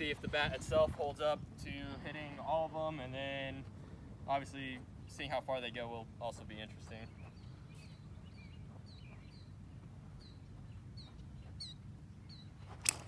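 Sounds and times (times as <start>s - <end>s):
small birds chirping: 6.0s - 13.0s.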